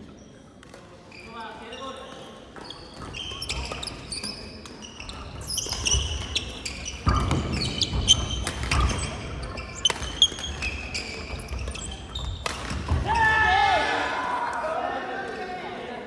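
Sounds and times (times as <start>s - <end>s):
shoes squeaking on wooden floor: 1.1s - 12.9s
rackets hitting shuttlecock: 4.6s - 13.1s.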